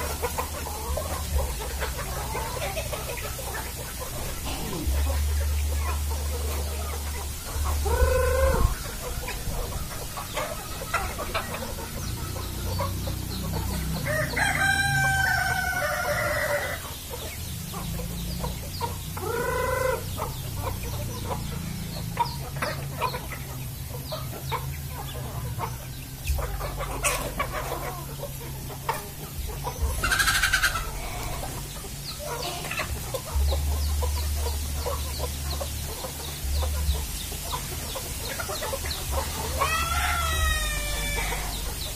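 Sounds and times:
chickens clucking: 0.0s - 41.9s
rooster crowing: 14.0s - 16.8s, 39.6s - 41.8s.

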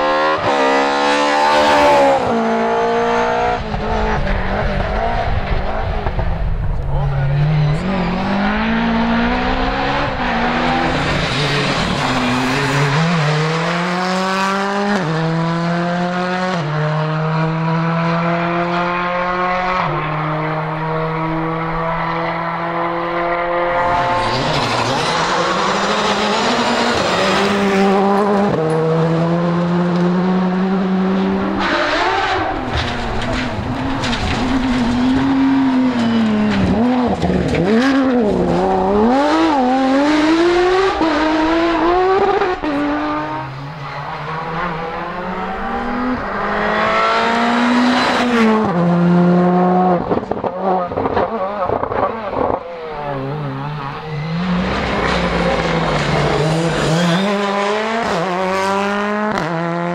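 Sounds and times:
rally car engines accelerating: 0.0s - 59.9s
sports car engine revving: 44.2s - 59.9s.

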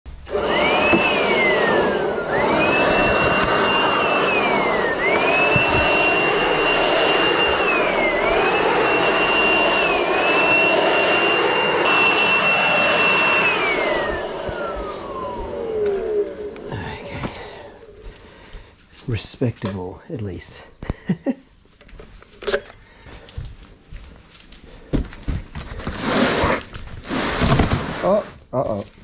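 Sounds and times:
electric leaf blower running: 0.1s - 18.3s, 25.7s - 28.4s.

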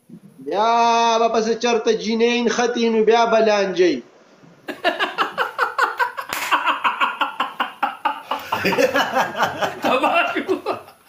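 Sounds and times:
man laughing hard: 4.7s - 11.0s.

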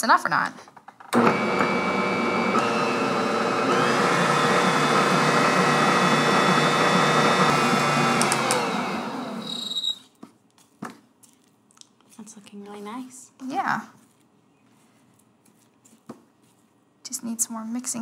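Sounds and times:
stand mixer motor running: 1.2s - 9.6s.

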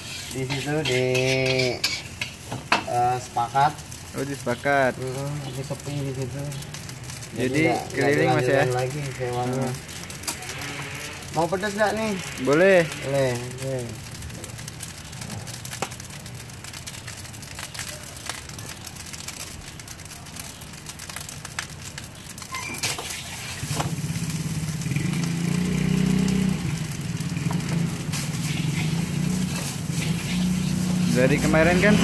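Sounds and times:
metal spatula scraping a wok: 0.0s - 2.6s, 28.1s - 31.2s
vehicle engine humming: 23.7s - 32.0s.

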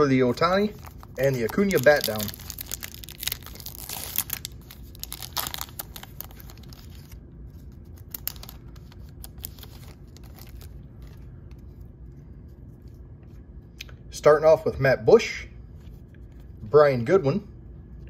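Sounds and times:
foil wrapper crinkling: 0.4s - 11.6s.

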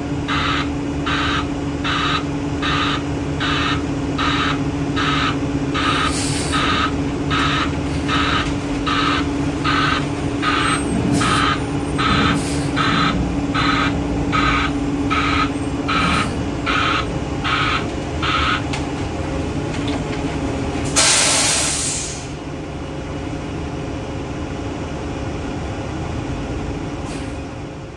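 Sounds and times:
truck reversing beeper: 0.0s - 18.8s
diesel engine running: 0.0s - 27.9s
air brakes hissing: 5.8s - 9.0s, 9.6s - 13.8s, 20.9s - 22.4s, 27.0s - 27.6s.

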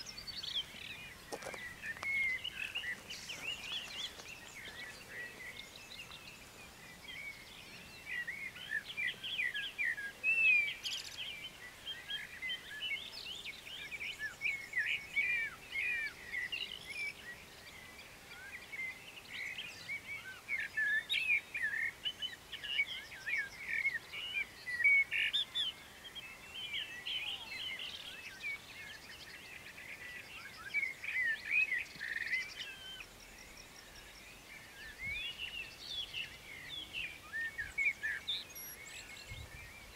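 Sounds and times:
songbirds chirping and warbling: 0.0s - 39.9s.

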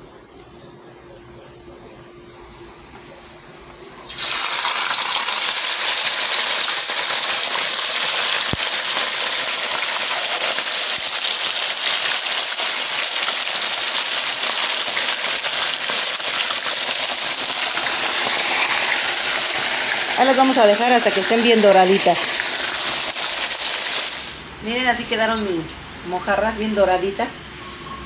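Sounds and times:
fish sizzling in hot oil: 4.0s - 24.4s.

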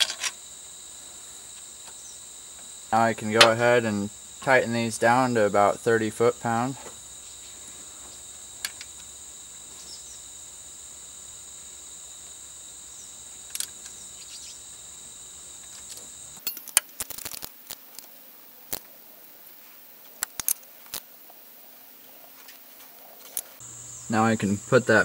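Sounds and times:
metal tools clinking: 15.8s - 16.9s.

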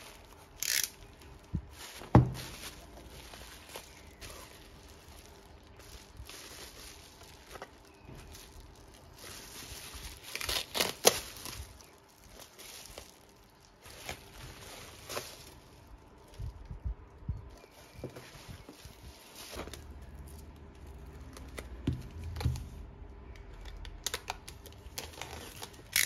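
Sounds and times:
bubble wrap tearing: 0.0s - 16.7s, 17.5s - 22.8s, 23.6s - 26.0s
bubble wrap crinkling: 0.0s - 22.9s, 23.5s - 26.0s.

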